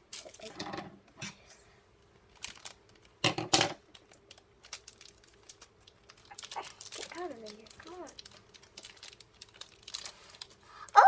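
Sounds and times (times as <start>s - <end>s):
plastic bag crinkling: 2.3s - 3.2s, 3.8s - 11.0s.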